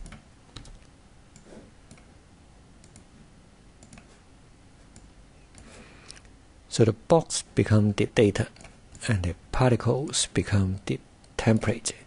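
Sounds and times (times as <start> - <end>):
computer mouse clicks: 0.0 - 2.1, 2.8 - 3.1, 3.8 - 4.2, 4.9 - 6.3, 8.5 - 9.0
keyboard clicks: 0.0 - 2.1, 2.8 - 3.1, 3.8 - 4.1.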